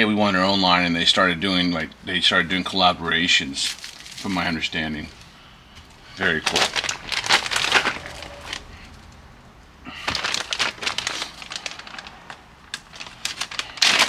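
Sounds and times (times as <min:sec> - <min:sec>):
plastic bag crinkling: 0:03.6 - 0:09.1, 0:09.9 - 0:14.0.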